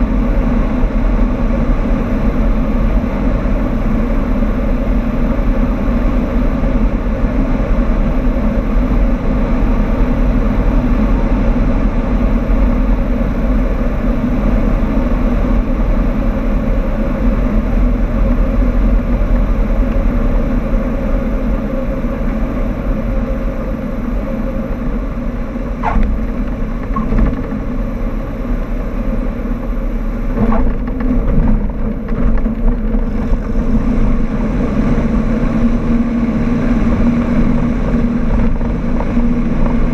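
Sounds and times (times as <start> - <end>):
airplane engine and propeller drone: 0.0 - 39.9.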